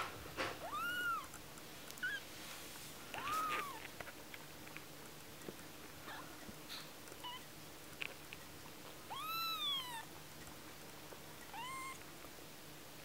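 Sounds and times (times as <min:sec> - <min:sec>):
kitten mewing: 0:00.6 - 0:01.4, 0:03.1 - 0:03.9, 0:11.5 - 0:12.0.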